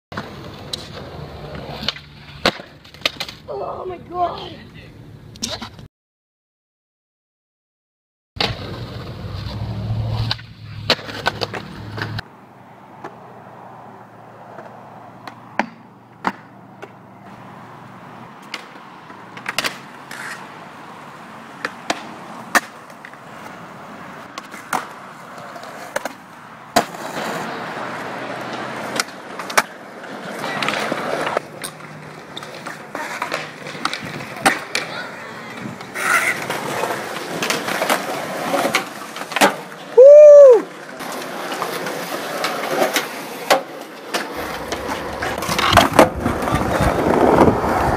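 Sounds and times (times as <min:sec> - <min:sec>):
skateboard wheels rolling on concrete: 0:00.1 - 0:05.9, 0:08.4 - 0:47.9
skateboard clacks: 0:00.2 - 0:03.4, 0:10.1 - 0:12.3, 0:14.5 - 0:17.0, 0:18.4 - 0:20.6, 0:21.5 - 0:23.6, 0:24.2 - 0:47.9.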